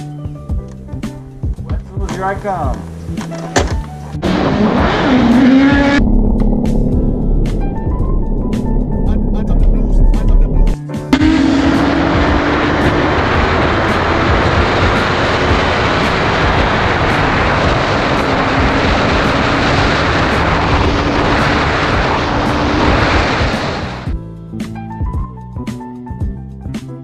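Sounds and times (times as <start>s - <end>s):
motorcycle engine running: 11.2s - 24.1s
wind rushing over microphone: 11.2s - 24.1s.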